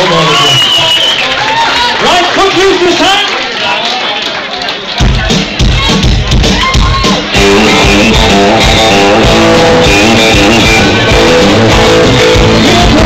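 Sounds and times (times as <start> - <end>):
live band playing dance music: 4.8 - 13.0.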